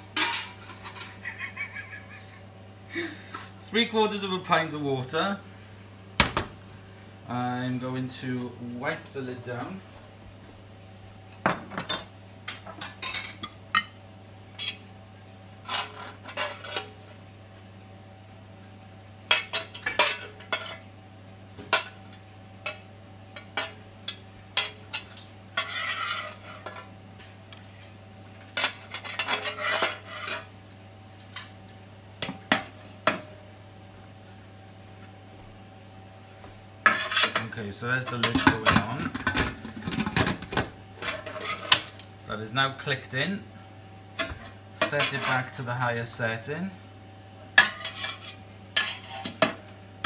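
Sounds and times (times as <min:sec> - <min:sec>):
steady low hum: 0:00.0 - 0:50.0
metal tongs scraping steel platter: 0:28.6 - 0:30.5, 0:47.6 - 0:49.4.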